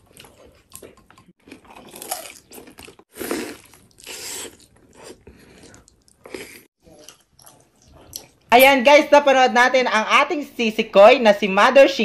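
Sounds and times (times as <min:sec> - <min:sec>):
crunchy chewing: 0:00.0 - 0:08.5.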